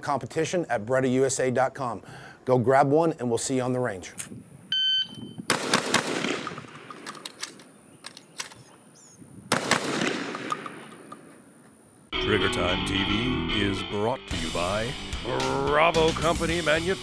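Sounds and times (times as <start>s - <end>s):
shotgun shots: 5.5s - 7.6s, 9.5s - 11.3s.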